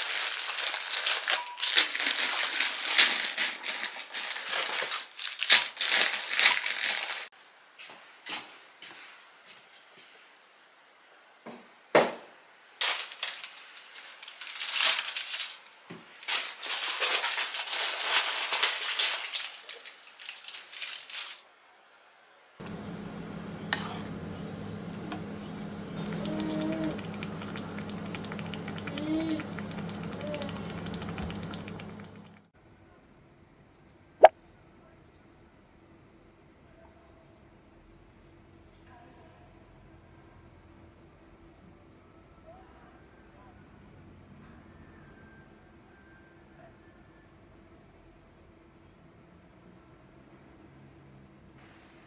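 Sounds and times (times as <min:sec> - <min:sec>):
plastic wrappers crinkling: 0:00.0 - 0:07.3, 0:12.8 - 0:21.5, 0:26.2 - 0:32.3
low electrical hum: 0:09.5 - 0:50.3.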